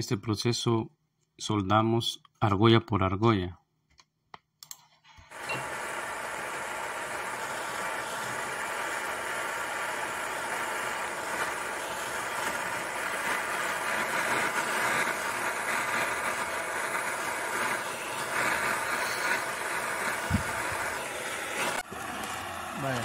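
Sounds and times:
gas soldering torch hissing: 0:05.3 - 0:23.0.

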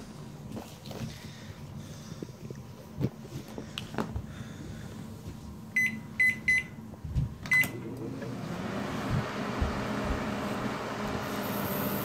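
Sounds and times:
microwave hum and fan: 0:05.6 - 0:12.0
microwave keypad beeps: 0:05.8 - 0:06.8, 0:07.5 - 0:07.8.

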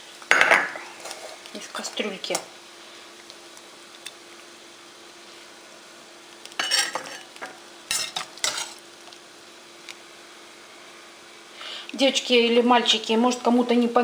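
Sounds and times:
metal spoon scraping a pot: 0:06.6 - 0:07.3, 0:07.9 - 0:08.8.

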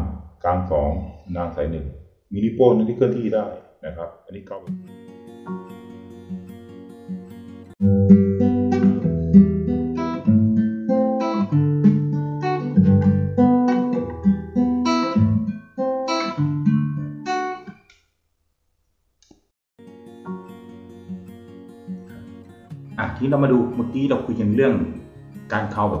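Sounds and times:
fingerpicked nylon-string guitar: 0:04.7 - 0:17.8, 0:19.8 - 0:26.0.

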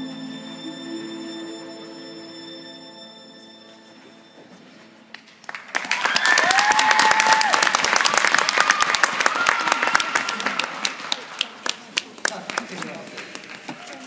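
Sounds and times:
audience applause: 0:05.2 - 0:14.0
people cheering: 0:05.7 - 0:11.6.

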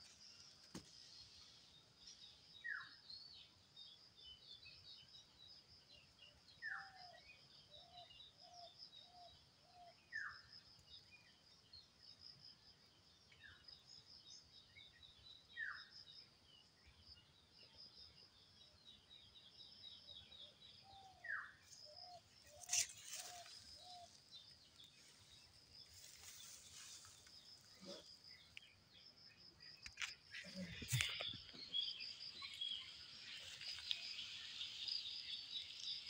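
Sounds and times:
high twittering bird chorus: 0:13.4 - 0:36.0.

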